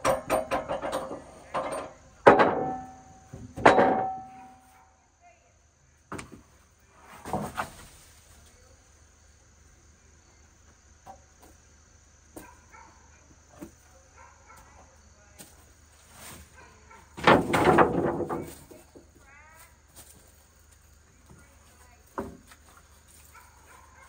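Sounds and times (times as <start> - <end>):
wooden strips clattering onto pile: 0.0 - 4.6, 17.1 - 19.2
faint insect trill: 0.0 - 17.2, 17.9 - 24.0.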